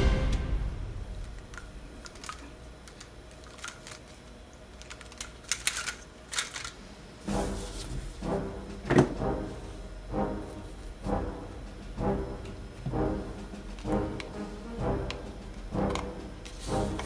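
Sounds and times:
plastic links clicking together: 0:01.6 - 0:06.8.

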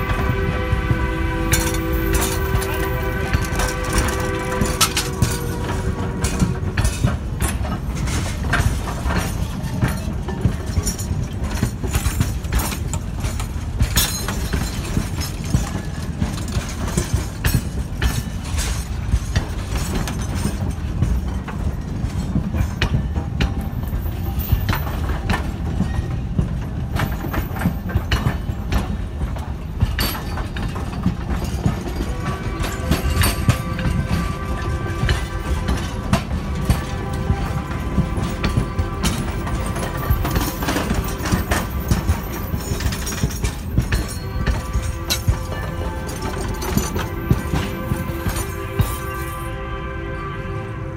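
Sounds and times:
wheels clacking over rail joints: 0:00.0 - 0:49.6
train cars rolling past: 0:00.0 - 0:50.9.

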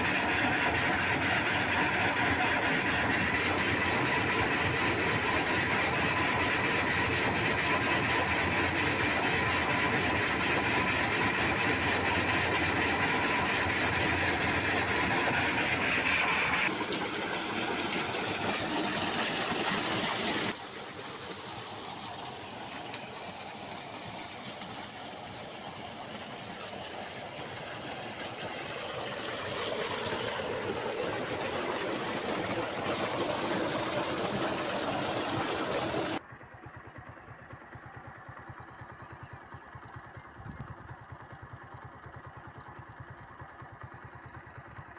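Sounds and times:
water gushing into a tank: 0:00.0 - 0:16.1, 0:16.7 - 0:36.2
pump humming: 0:00.0 - 0:36.3.

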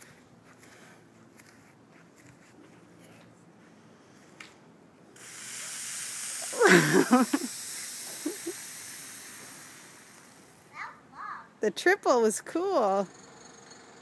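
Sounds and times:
fizzing spray hiss: 0:05.2 - 0:10.7.

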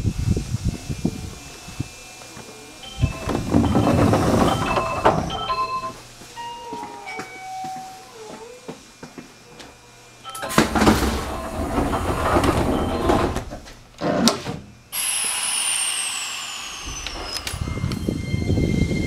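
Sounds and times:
train doors opening rush: 0:00.0 - 0:08.0, 0:10.3 - 0:15.9, 0:16.6 - 0:19.0
standing train noise: 0:00.0 - 0:14.0, 0:14.6 - 0:19.0
high falling whistle: 0:15.0 - 0:19.0.

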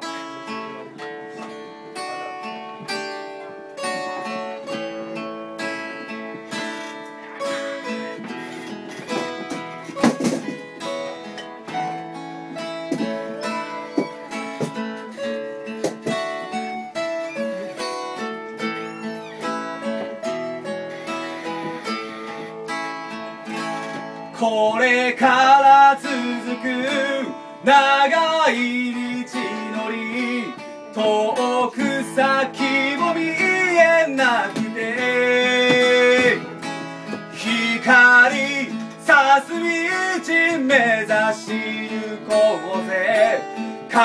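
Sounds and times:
acoustic guitars strumming: 0:00.0 - 0:44.0.

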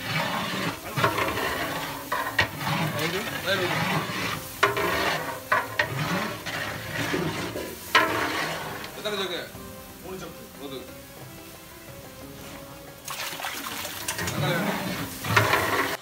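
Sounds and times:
metal ladle scraping pot: 0:00.0 - 0:09.6, 0:13.2 - 0:16.0
food sizzling in pot: 0:00.0 - 0:16.0.

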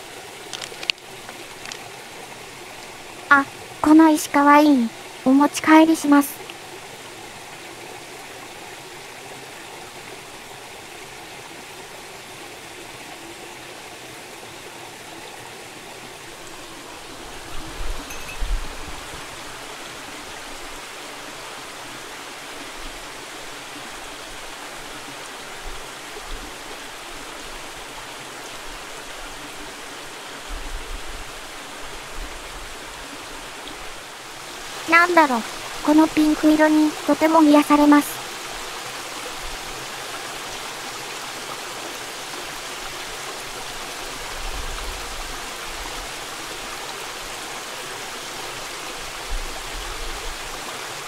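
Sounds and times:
mountain stream rushing: 0:00.0 - 0:51.0.

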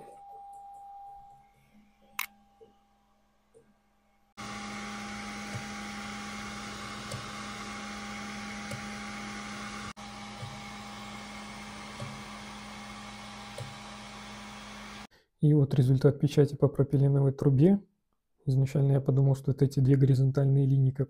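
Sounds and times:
laser engraver fan and motor hum: 0:04.4 - 0:15.1.

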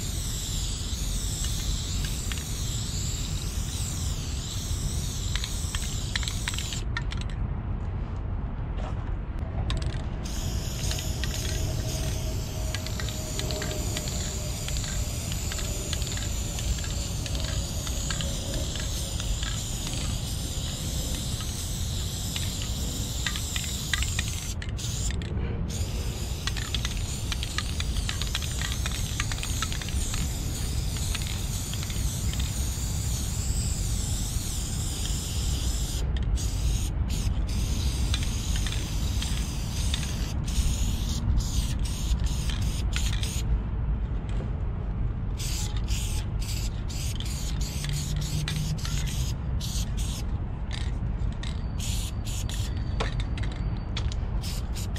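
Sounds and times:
spray paint can hissing: 0:00.0 - 0:07.3, 0:09.7 - 0:43.5, 0:45.4 - 0:54.9
low rumble: 0:09.1 - 0:19.3.

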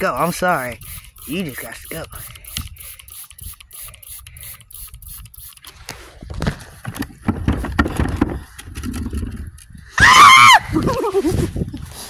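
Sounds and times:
phone handling rustles and knocks: 0:05.7 - 0:09.4.

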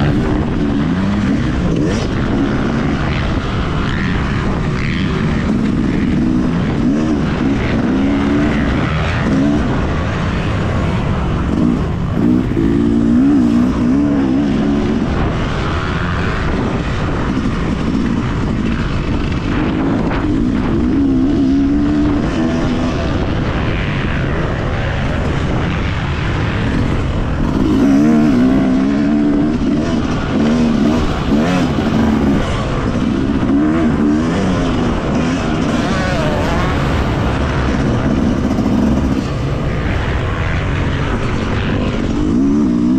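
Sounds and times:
motocross bike engine revving: 0:00.0 - 0:42.9.

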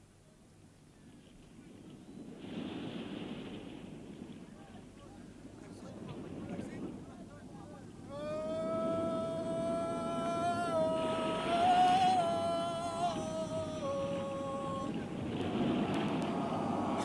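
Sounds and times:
low steady rumble: 0:00.0 - 0:17.0
man singing long held note: 0:08.0 - 0:17.0.

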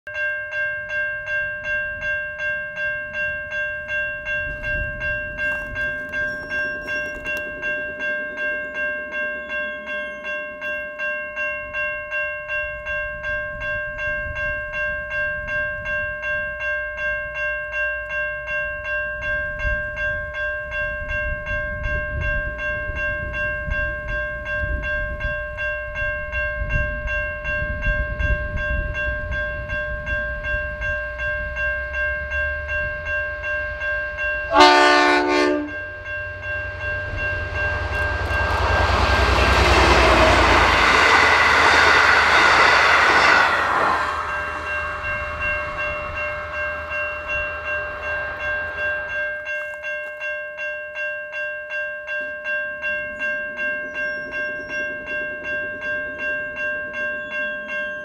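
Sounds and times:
pulsing bell-like ringing: 0:00.1 - 0:58.0
train rumbling by: 0:03.0 - 0:10.8, 0:18.5 - 0:50.6, 0:52.7 - 0:58.0.

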